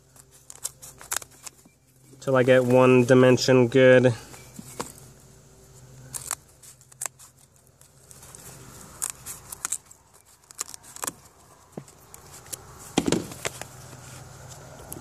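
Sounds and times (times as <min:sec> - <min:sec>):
scissors snipping balsa: 0:05.9 - 0:15.0.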